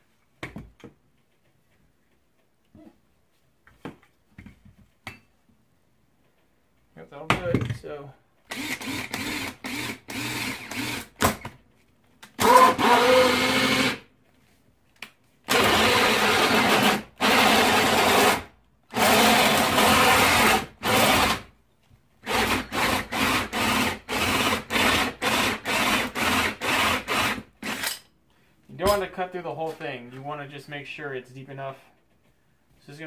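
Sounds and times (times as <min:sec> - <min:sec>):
cordless drill with hole saw: 0:08.5 - 0:11.3, 0:12.4 - 0:14.0, 0:15.5 - 0:21.5, 0:22.2 - 0:28.0.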